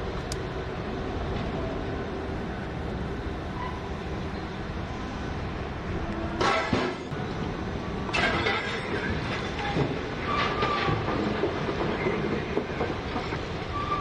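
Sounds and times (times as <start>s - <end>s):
heavy mining machinery rumble: 0.0s - 14.0s.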